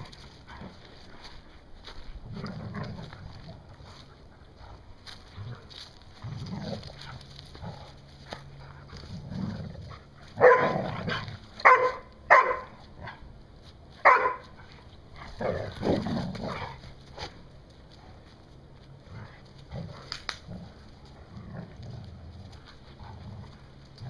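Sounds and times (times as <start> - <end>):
dogs growling: 2.0 - 11.7, 14.6 - 17.4, 19.0 - 24.0
dog barking sharply: 11.6 - 12.7, 14.0 - 14.4.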